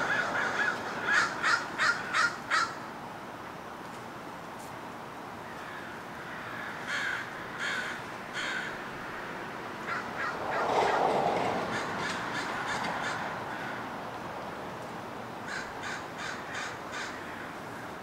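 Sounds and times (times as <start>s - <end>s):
crows cawing: 0.0s - 2.9s, 5.4s - 8.9s, 9.8s - 11.0s, 11.6s - 14.0s, 15.4s - 18.0s
brief rushing noise: 10.2s - 12.2s.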